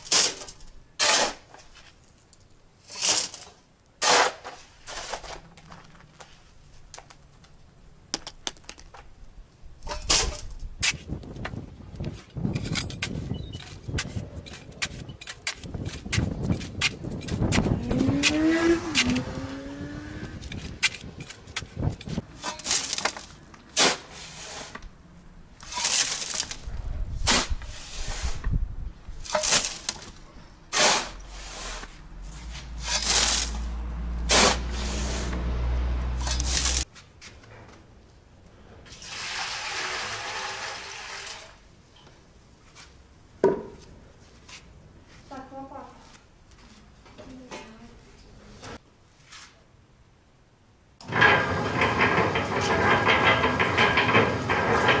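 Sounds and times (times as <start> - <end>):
shovel scraping gravel: 0.0 - 2.1, 2.8 - 5.5, 9.9 - 24.8, 25.6 - 28.4, 29.2 - 35.4, 36.2 - 36.9.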